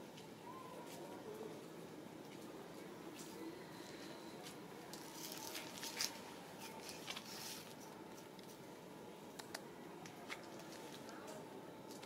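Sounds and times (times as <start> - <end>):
low background noise: 0.0 - 12.0
faint clicks and rustles: 2.2 - 8.7, 9.3 - 12.0.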